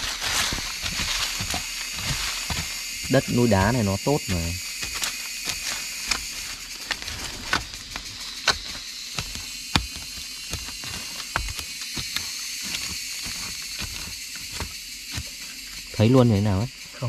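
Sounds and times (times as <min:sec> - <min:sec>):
knife striking stony soil: 0:00.0 - 0:15.8
earth scraping: 0:00.0 - 0:16.8
steady high hiss: 0:00.0 - 0:17.0.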